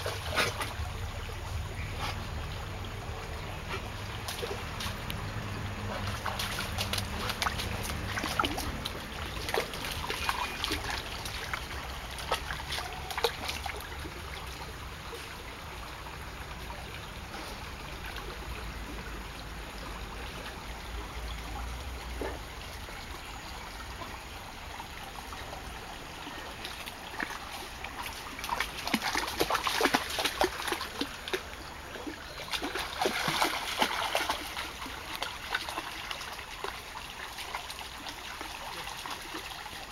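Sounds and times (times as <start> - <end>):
shallow stream running: 0.0 - 39.9
dog splashing through water: 4.2 - 14.2, 26.6 - 39.6.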